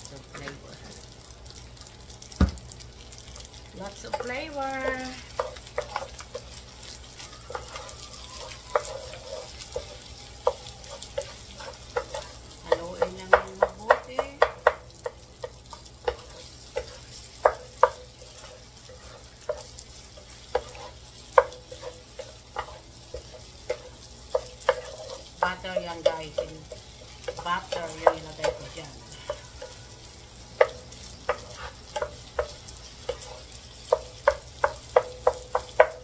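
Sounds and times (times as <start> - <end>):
rice sizzling: 0.0 - 36.0
wooden spatulas clacking on pan: 30.6 - 36.0.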